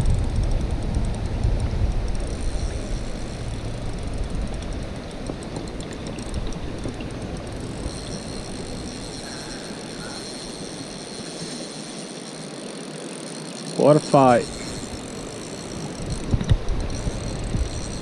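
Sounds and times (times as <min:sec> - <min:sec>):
low rumbling: 0:00.0 - 0:10.3
stream water rushing: 0:02.1 - 0:18.0.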